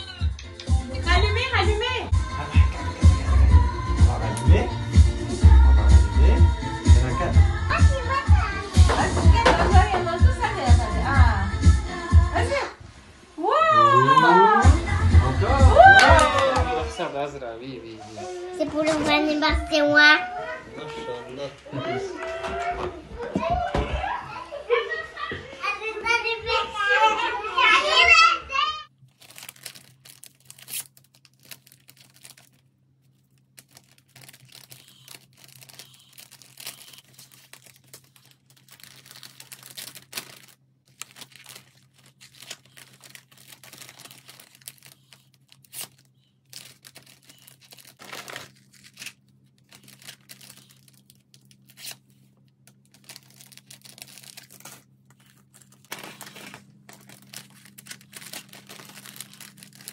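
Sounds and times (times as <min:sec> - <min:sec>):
faint steady hum: 0:28.9 - 0:59.9
plastic packaging rustling: 0:29.0 - 0:59.9.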